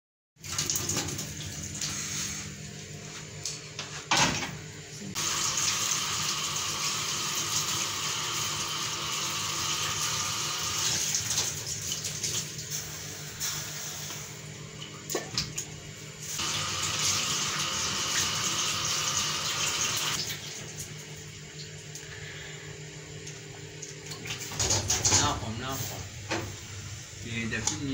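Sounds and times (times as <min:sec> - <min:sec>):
tap water running into sink: 0:00.4 - 0:01.9, 0:05.2 - 0:13.0, 0:16.4 - 0:22.0
steady low hum: 0:20.2 - 0:27.9.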